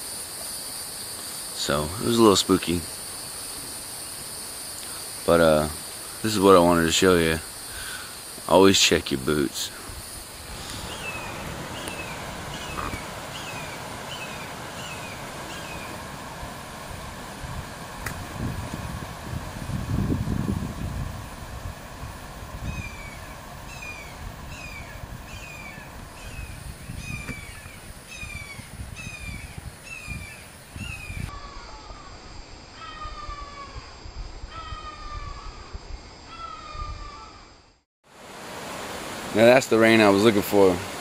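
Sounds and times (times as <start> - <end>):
outdoor background hiss: 0.0 - 41.0
bird calling: 10.2 - 16.2, 22.6 - 32.2, 32.8 - 33.8, 34.5 - 35.7, 36.3 - 37.5.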